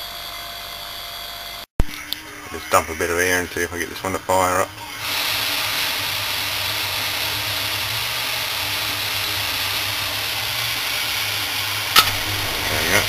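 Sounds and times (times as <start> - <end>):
compressed air hissing: 12.0 - 13.0.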